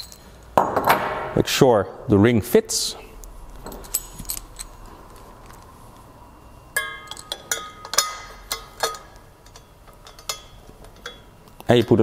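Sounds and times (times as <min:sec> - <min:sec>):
metal fittings clinking: 0:00.0 - 0:00.3, 0:03.6 - 0:04.9, 0:06.8 - 0:12.0.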